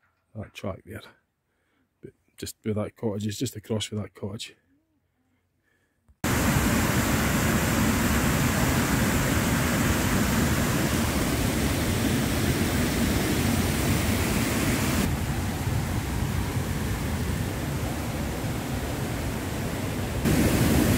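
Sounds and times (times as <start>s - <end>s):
stream rushing over rocks: 20.0s - 20.9s.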